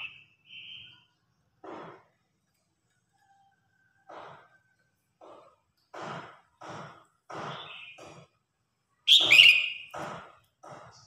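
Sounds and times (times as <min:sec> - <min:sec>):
bird singing harsh phrases: 0:00.0 - 0:01.2, 0:09.1 - 0:10.0.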